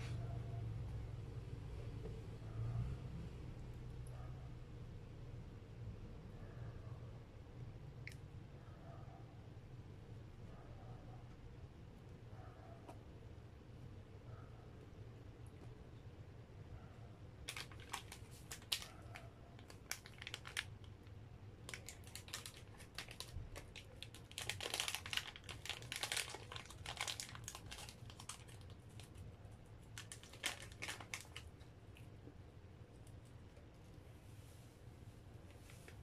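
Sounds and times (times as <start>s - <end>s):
plastic sachet crinkling: 17.4s - 31.6s.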